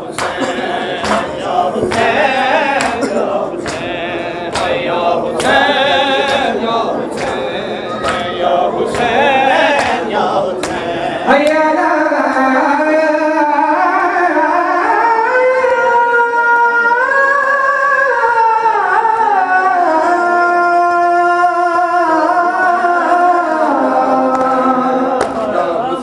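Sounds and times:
men singing a lament: 0.0 - 26.0
hands slapping chests: 0.2 - 11.6.

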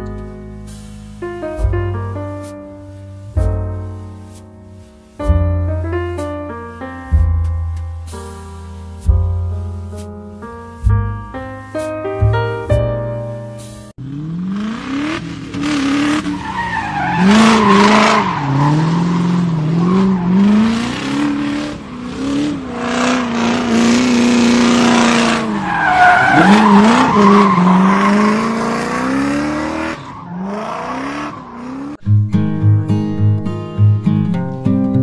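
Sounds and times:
hiss: 0.6 - 1.3
car engine revving: 14.0 - 32.0.

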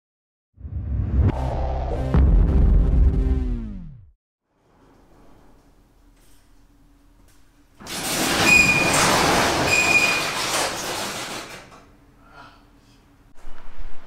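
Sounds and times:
metal roll-up door rattling: 7.8 - 11.9
door squealing: 7.9 - 11.0.

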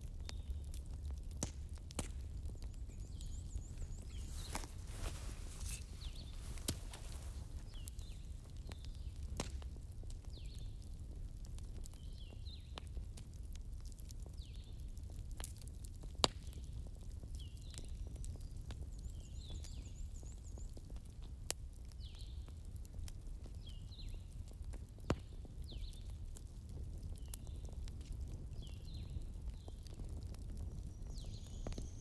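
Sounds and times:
bird chirping: 2.6 - 8.9.

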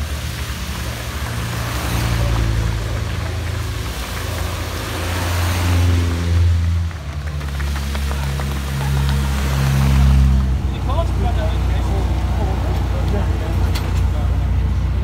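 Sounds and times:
race car engines at low revs: 0.0 - 15.0.

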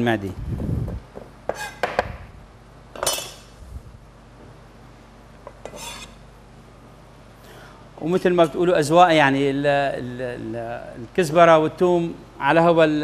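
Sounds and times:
knife on cutting board: 5.5 - 6.2.

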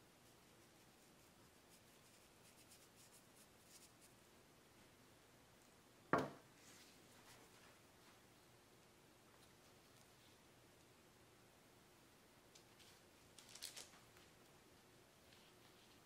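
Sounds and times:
dull thump: 6.1 - 6.4
light ticking of flakes sprinkled: 8.8 - 11.0, 12.4 - 16.0.

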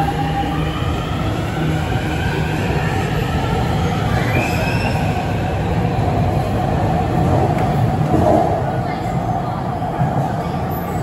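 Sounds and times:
subway train rumble: 0.0 - 11.0
train wheel squeal: 4.1 - 5.4.

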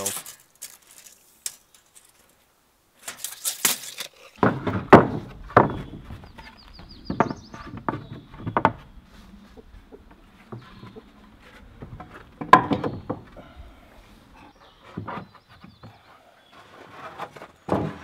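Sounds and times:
wooden boards knocking on metal frame: 4.4 - 9.0, 9.6 - 13.4.

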